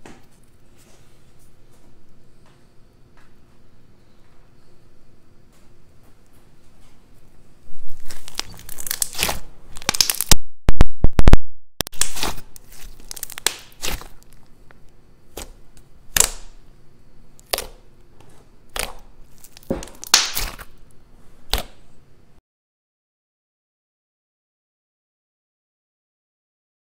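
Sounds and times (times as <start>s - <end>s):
slime popping and crackling: 7.8s - 10.4s, 11.1s - 14.5s, 15.3s - 16.6s, 17.4s - 17.8s, 18.7s - 20.8s.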